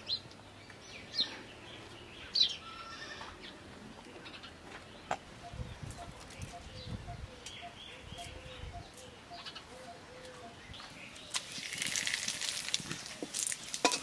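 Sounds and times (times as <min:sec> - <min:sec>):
spices sizzling in hot oil: 0:11.3 - 0:14.0.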